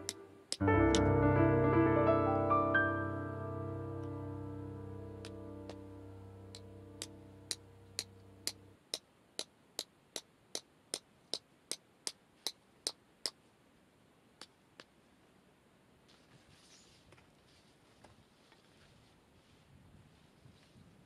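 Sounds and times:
piano music: 0.0 - 8.7.

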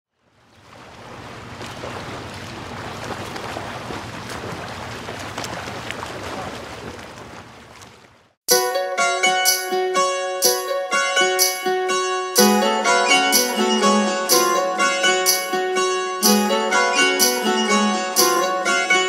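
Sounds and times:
wind: 0.1 - 8.4.

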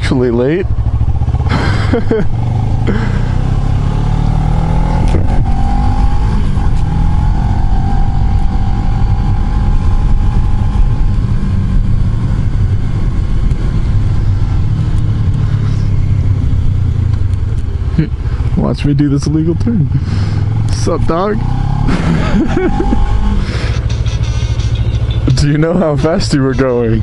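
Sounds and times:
motorcycle engine whine: 0.0 - 27.0
wind rush on microphone: 4.9 - 17.8.

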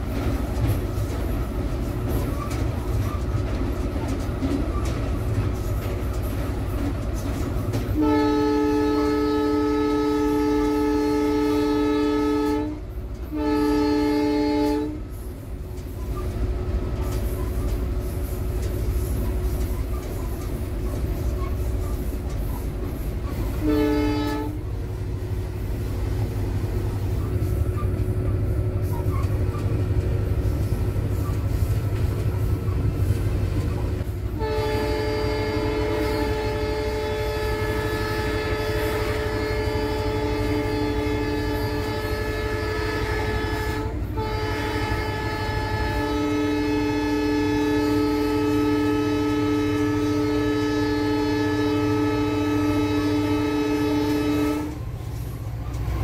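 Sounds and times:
locomotive engine and rail rumble: 0.0 - 56.0
locomotive horn chord: 7.9 - 15.0, 23.5 - 24.6, 34.3 - 54.8.

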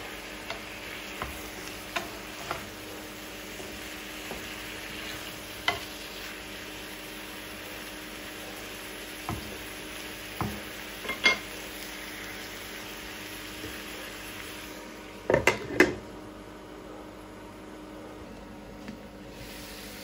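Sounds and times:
food sizzling in a frying pan: 0.0 - 15.7, 19.3 - 20.0
wooden spatula knocking on pan: 1.2 - 2.7, 9.2 - 9.6, 10.4 - 11.4.

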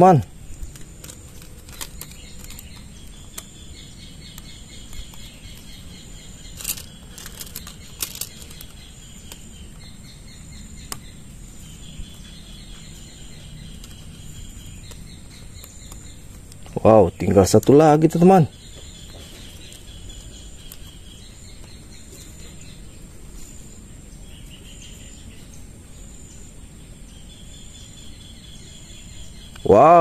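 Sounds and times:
insects chirping: 0.0 - 30.0
plastic track pieces clicking: 0.7 - 3.5, 6.6 - 9.4.

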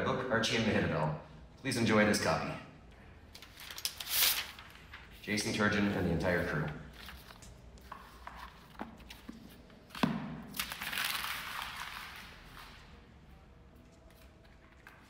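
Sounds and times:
paper rustling: 3.4 - 10.0, 10.6 - 13.0.

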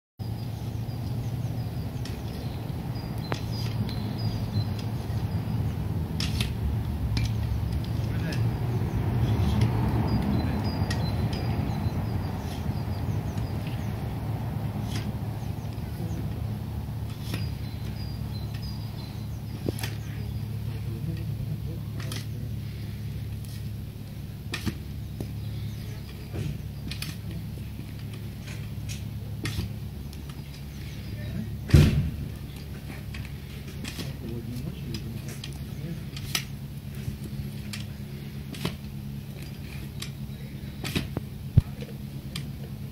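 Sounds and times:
steady low hum: 0.2 - 42.9
steady low rumble: 0.2 - 42.9
digging fork clanking: 3.2 - 8.6, 14.7 - 23.7, 24.3 - 41.2.

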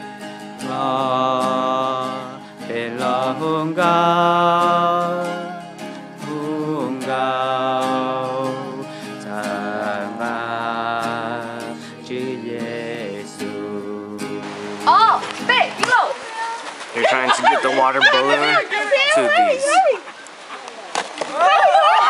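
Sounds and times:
musical accompaniment: 11.0 - 16.0.

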